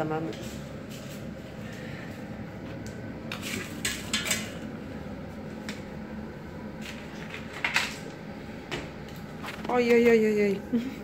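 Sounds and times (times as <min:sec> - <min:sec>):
pots and utensils clattering: 0:03.3 - 0:04.6, 0:06.8 - 0:08.1.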